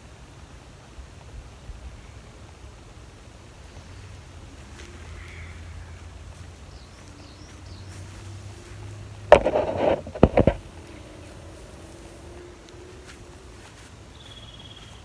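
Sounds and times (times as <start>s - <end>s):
camera handling rustle: 9.3s - 11.0s.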